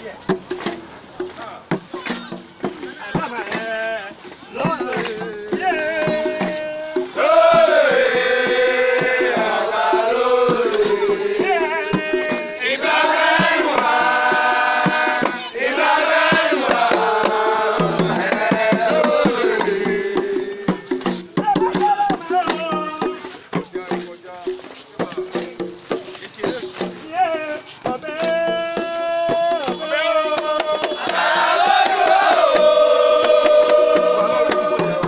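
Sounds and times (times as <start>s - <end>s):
hand drums: 0.0s - 35.0s
men chanting together: 3.5s - 23.2s, 27.0s - 35.0s.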